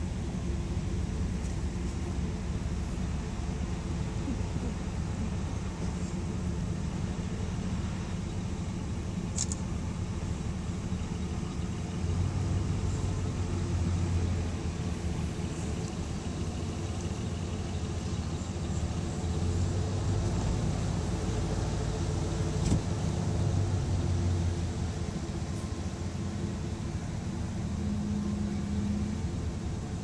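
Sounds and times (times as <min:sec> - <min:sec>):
car engine hum: 0:00.0 - 0:30.0
road noise: 0:00.0 - 0:30.0
faint click: 0:09.3 - 0:09.6.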